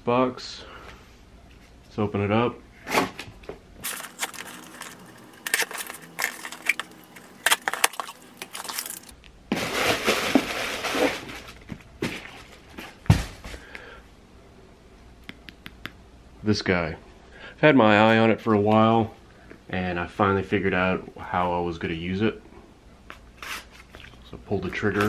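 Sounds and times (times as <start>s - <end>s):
knife slitting packing tape: 3.8s - 9.1s, 23.4s - 23.9s.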